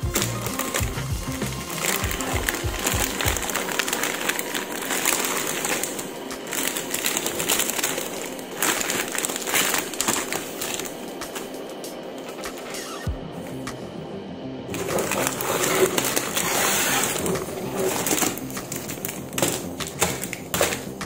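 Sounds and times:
plastic bags crinkling: 0:00.0 - 0:12.8, 0:14.7 - 0:21.0.

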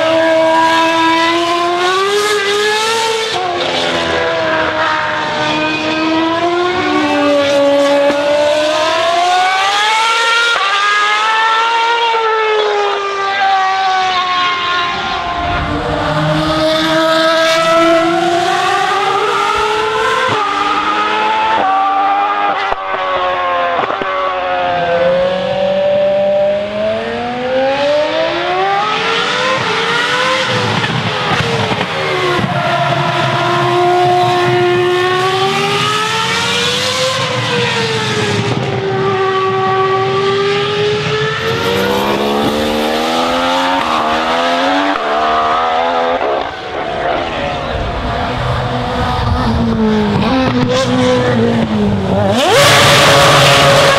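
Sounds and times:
race car engines screaming: 0:00.0 - 0:53.9.

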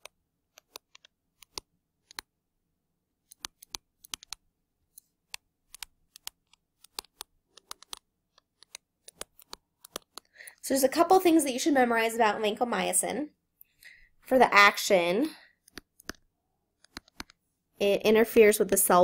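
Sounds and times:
stylus tapping on tablet: 0:03.3 - 0:04.4, 0:05.3 - 0:10.3, 0:15.7 - 0:16.2, 0:16.8 - 0:17.4.

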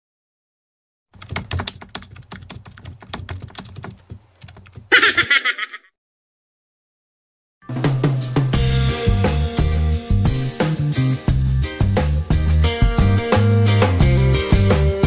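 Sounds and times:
keyboard typing clicks: 0:01.2 - 0:04.9.

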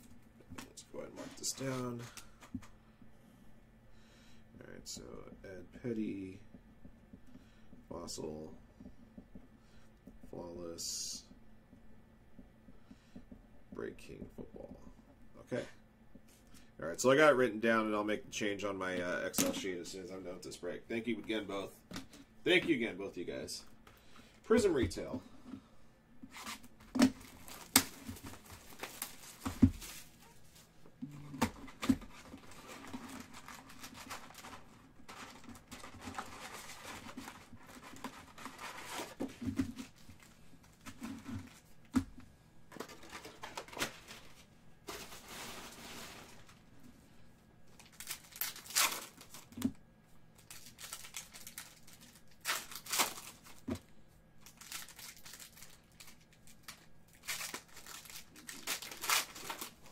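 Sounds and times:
foil wrappers crinkling and tearing: 0:26.3 - 0:30.4, 0:31.5 - 0:39.2, 0:47.7 - 0:49.6, 0:50.4 - 0:53.7, 0:54.4 - 0:59.9.

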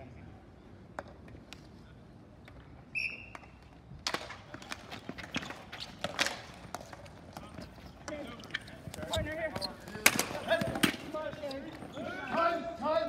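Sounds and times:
hockey sticks and ball clacking: 0:02.4 - 0:13.0
referee's whistle blast: 0:02.9 - 0:03.4.

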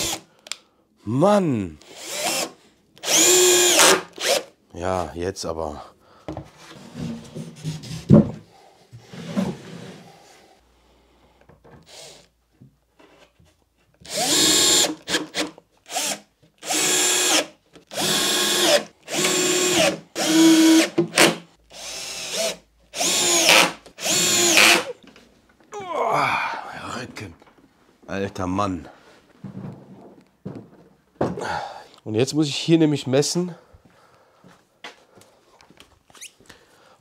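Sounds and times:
cordless drill driving screws: 0:00.0 - 0:00.2, 0:01.8 - 0:04.5, 0:11.8 - 0:12.3, 0:14.0 - 0:25.0.

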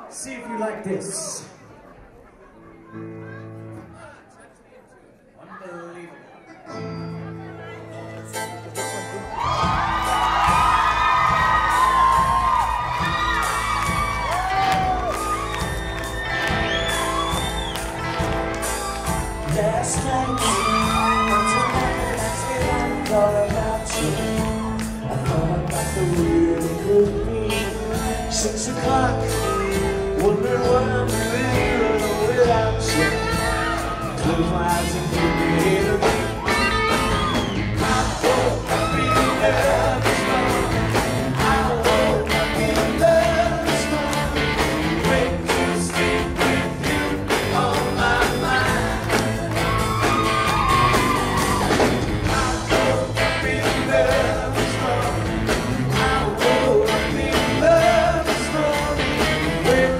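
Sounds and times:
live rock band playing: 0:06.7 - 0:59.9
lead singer singing: 0:18.9 - 0:59.9.

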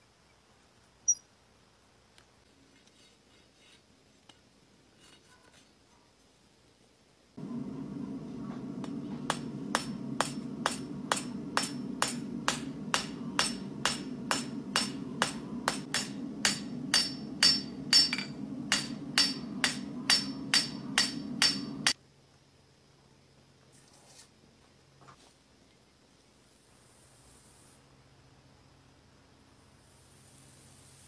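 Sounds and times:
steady low hum: 0:07.4 - 0:22.0
hammer ringing on anvil: 0:08.1 - 0:22.0.

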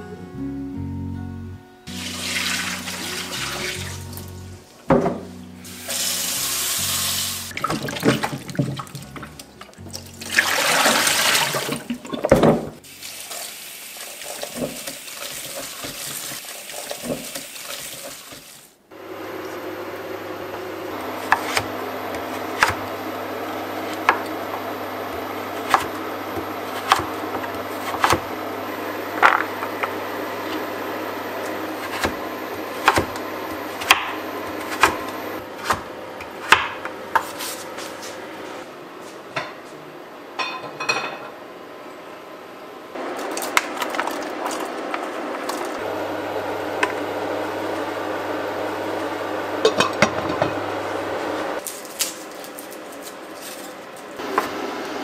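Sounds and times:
knife chopping on wooden board: 0:21.2 - 0:22.8, 0:25.2 - 0:28.2, 0:32.8 - 0:33.2, 0:35.6 - 0:37.4.

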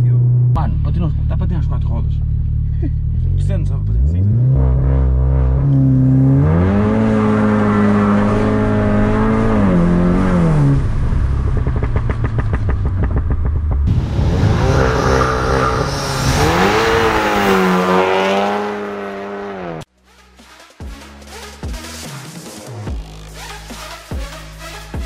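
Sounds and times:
car engine accelerating hard: 0:00.0 - 0:19.9.

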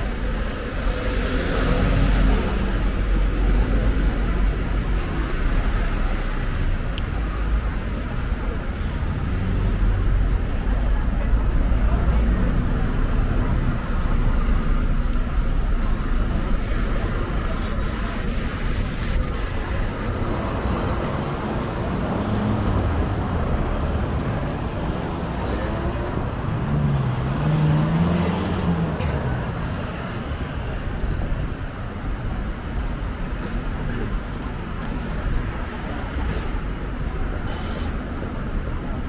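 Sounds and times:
traffic rumble: 0:00.0 - 0:39.0
short high squeaks: 0:14.2 - 0:16.1.

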